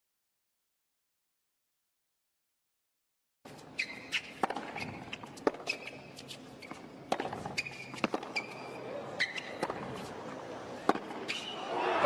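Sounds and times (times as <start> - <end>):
tennis shoes squeaking: 3.5 - 11.8
ball bounces: 7.1 - 8.6.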